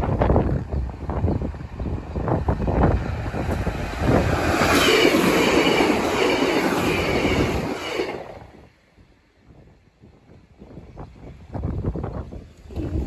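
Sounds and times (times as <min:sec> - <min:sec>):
train wheels rushing on rail: 0:00.0 - 0:08.9.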